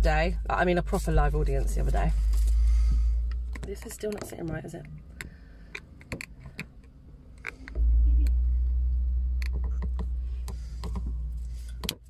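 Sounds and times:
microphone handling rumble: 0.0 - 5.2
small clicks and knocks: 3.3 - 8.4, 9.4 - 12.0.

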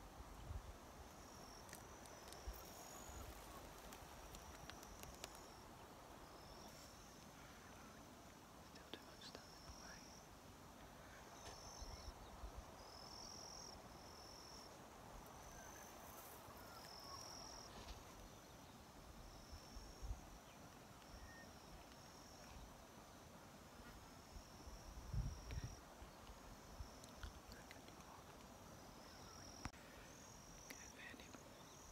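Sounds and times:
insects calling: 1.0 - 31.9
wind rumble on microphone: 24.9 - 25.8.

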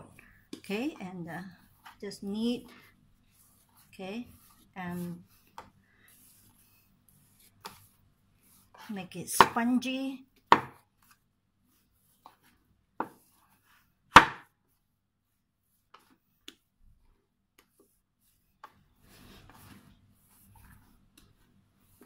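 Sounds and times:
hands rubbing dough: 0.2 - 22.0
dough thumping on wooden board: 10.5 - 10.8, 14.1 - 14.5.

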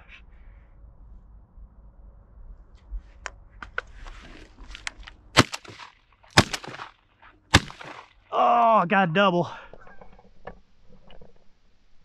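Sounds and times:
shotgun shots: 5.4 - 8.2.

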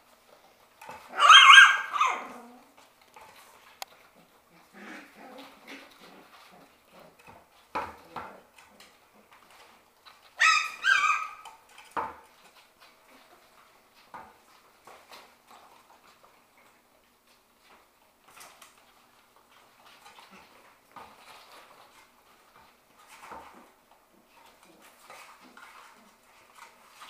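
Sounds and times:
puppy yipping: 1.1 - 2.4, 10.4 - 11.6.

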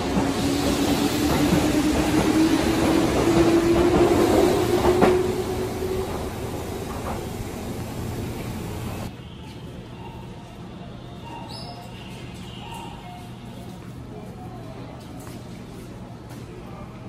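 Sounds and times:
wheels rumbling on rail: 0.0 - 9.1
electric train motors whining: 0.6 - 9.1.

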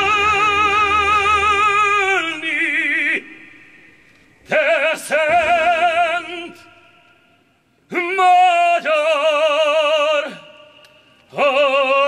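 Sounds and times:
man singing a hymn: 0.0 - 3.6, 4.4 - 7.0, 7.9 - 10.7, 11.3 - 12.0.

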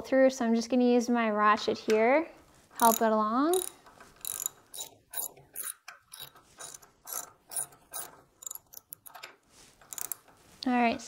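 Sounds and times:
socket ratchet clicking: 2.8 - 10.3.

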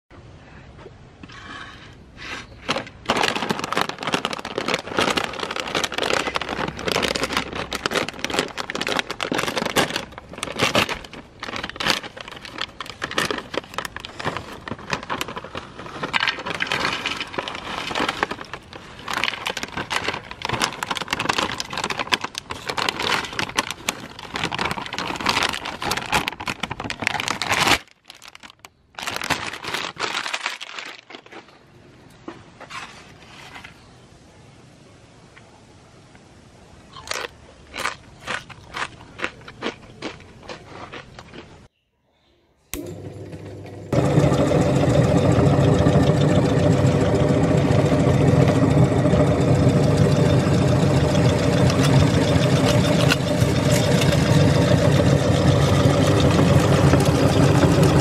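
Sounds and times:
plastic snack bag crackling: 2.7 - 31.8, 37.0 - 41.4, 42.8 - 58.0.

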